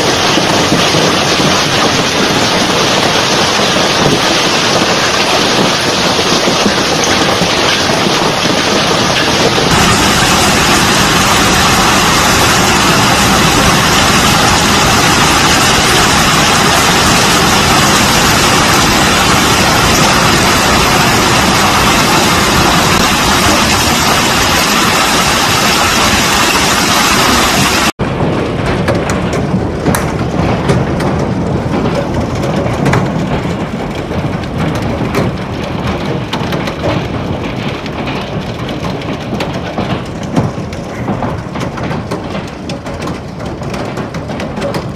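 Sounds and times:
hail and rain pelting: 0.0s - 44.9s
hailstones ticking on hard surfaces: 0.0s - 44.9s.

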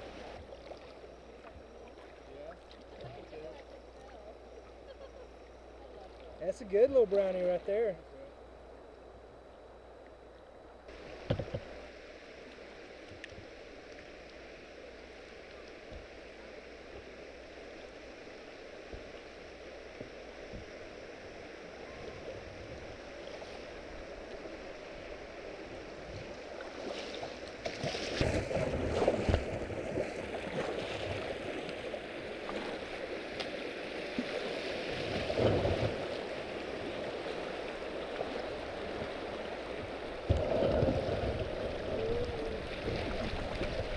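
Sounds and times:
knocks against kayak hull: 11.2s - 11.7s.

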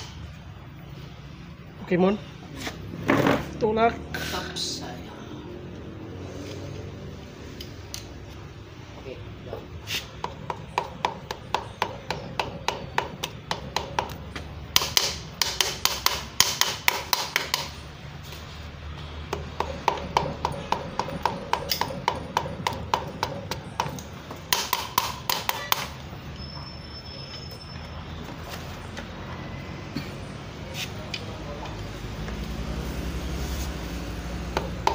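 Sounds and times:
hammer handle tapping on metal: 19.3s - 25.9s.

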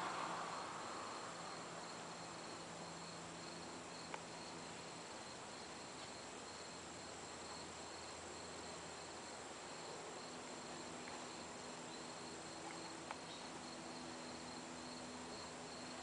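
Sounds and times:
faint low hum: 0.0s - 16.0s
insects trilling: 0.0s - 16.0s
soft hiss: 0.0s - 16.0s.

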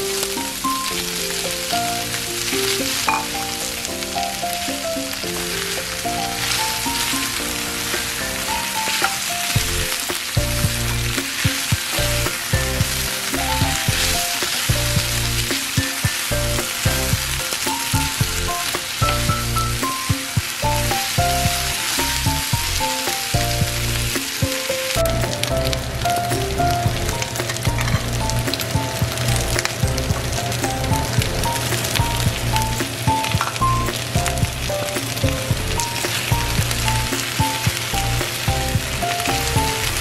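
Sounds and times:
background music melody: 0.0s - 40.0s
beef and vegetables sizzling: 0.0s - 40.0s
bass line: 9.6s - 11.2s, 12.0s - 15.5s, 16.3s - 19.8s, 20.6s - 22.8s, 23.4s - 24.2s, 25.0s - 32.9s, 33.6s - 37.2s, 37.9s - 40.0s.

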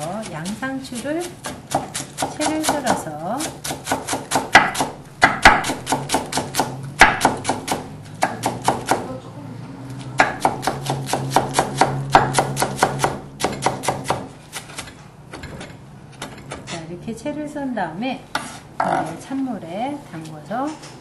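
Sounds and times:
knife chopping on wooden board: 0.0s - 9.1s, 10.2s - 14.9s.

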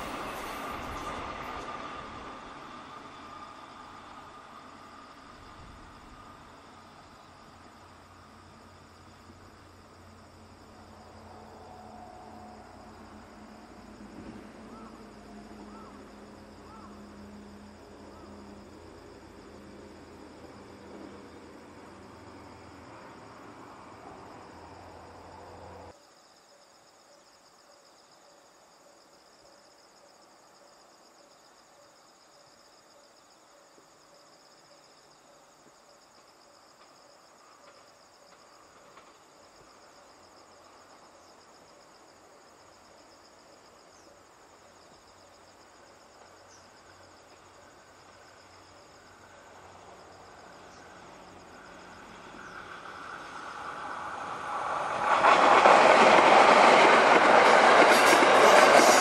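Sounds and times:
train rumble: 0.0s - 26.0s, 36.2s - 41.4s, 45.5s - 59.0s
insects chirping: 0.0s - 59.0s.

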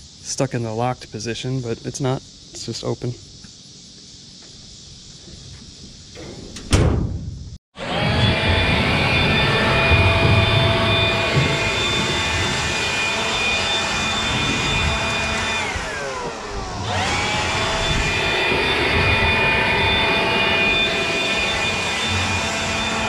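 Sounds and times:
small electric motor whining: 7.8s - 23.0s.

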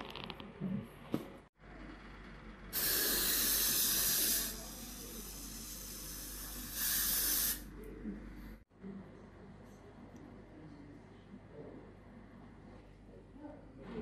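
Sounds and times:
aerosol spray hissing: 2.8s - 7.6s.

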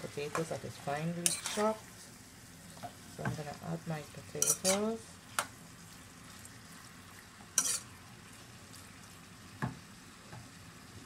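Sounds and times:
food sizzling in a pan: 0.0s - 11.0s
spoon clinking against pan: 4.4s - 4.8s.

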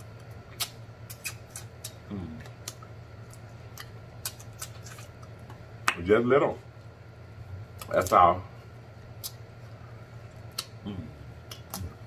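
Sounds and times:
low background hum: 0.0s - 12.0s
wet lip smacks and sucks: 0.5s - 2.9s, 9.2s - 9.4s, 10.5s - 10.8s, 11.4s - 12.0s
person humming: 2.1s - 2.5s, 10.8s - 12.0s.

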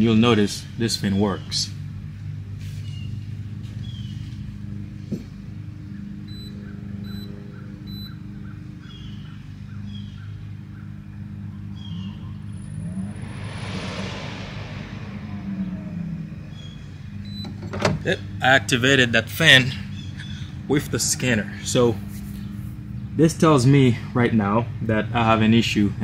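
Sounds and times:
rushing noise: 12.2s - 17.2s.

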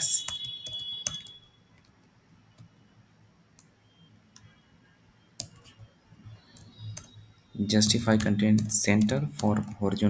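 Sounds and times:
keyboard keys clicking: 0.0s - 2.0s, 5.4s - 5.9s, 6.5s - 7.2s, 7.8s - 10.0s.

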